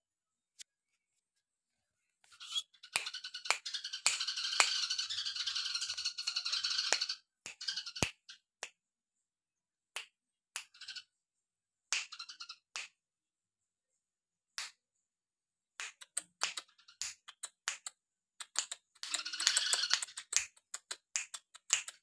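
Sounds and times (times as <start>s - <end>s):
rattling birdsong: 2.3s - 8.4s, 12.0s - 12.7s, 19.0s - 20.2s.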